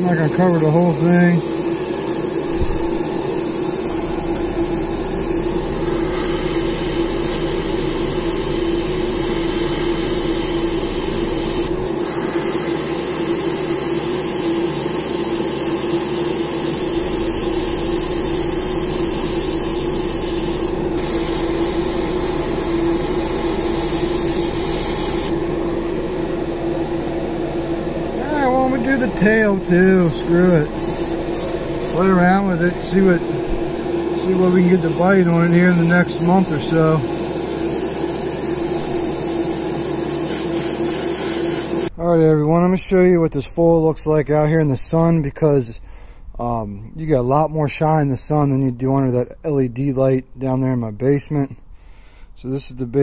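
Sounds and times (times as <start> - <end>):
airbrush hiss: 0.0 - 25.4, 28.5 - 33.2, 34.3 - 41.9
motor hum: 0.0 - 42.0.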